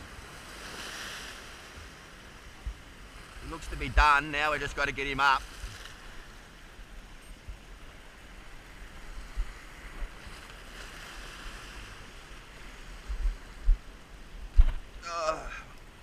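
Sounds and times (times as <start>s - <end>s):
surf washing over rocks: 0.0s - 16.0s
wind thumps on microphone: 2.6s - 2.8s, 9.2s - 10.3s, 13.0s - 15.0s.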